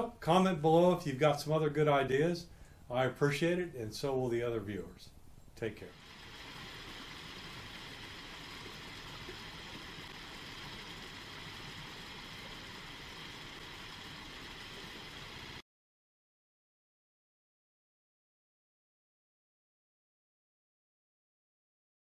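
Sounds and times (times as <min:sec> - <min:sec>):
mountain stream rushing over rocks: 0:06.0 - 0:15.6.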